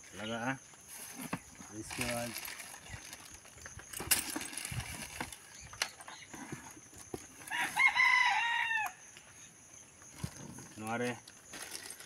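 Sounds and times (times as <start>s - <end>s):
rooster crowing: 7.4s - 9.1s.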